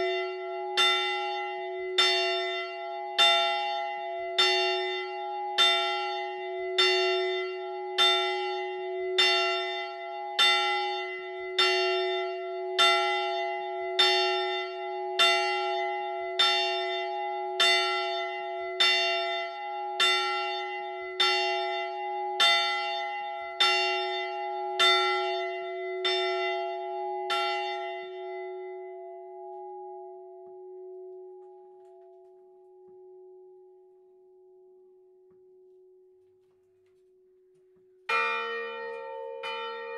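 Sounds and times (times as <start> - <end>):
church bell ringing: 0.0 - 36.1, 38.0 - 39.9.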